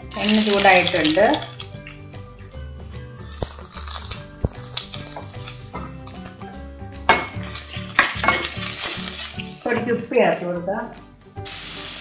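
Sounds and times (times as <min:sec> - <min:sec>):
onion sizzling in hot oil: 0:00.0 - 0:10.2, 0:11.4 - 0:12.0
background music: 0:00.0 - 0:12.0
spoon stirring and clattering on pan: 0:07.1 - 0:09.9.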